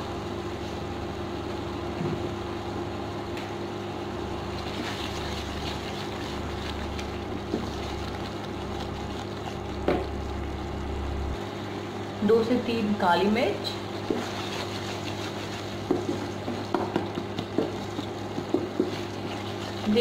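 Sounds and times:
electrical hum and fan drone: 0.0 - 20.0
wooden spatula scraping steel pot: 14.0 - 16.7, 17.7 - 20.0.

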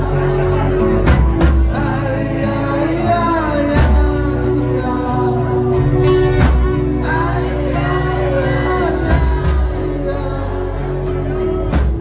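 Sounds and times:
live band playing: 0.0 - 12.0
man singing: 0.0 - 12.0.

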